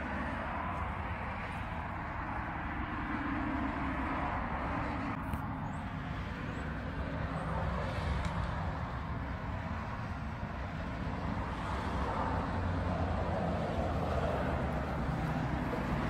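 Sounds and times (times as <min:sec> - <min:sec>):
road traffic rushing: 0:00.0 - 0:16.0.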